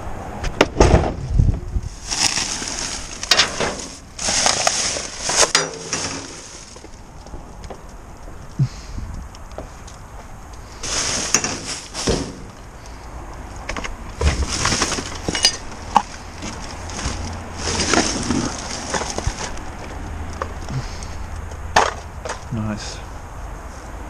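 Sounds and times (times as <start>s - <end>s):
plastic bags rustling: 1.9s - 7.6s, 10.6s - 21.1s.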